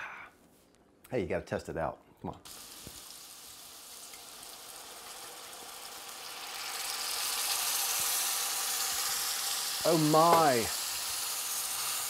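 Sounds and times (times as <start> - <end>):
wine sizzling in a hot pan: 2.4 - 12.0.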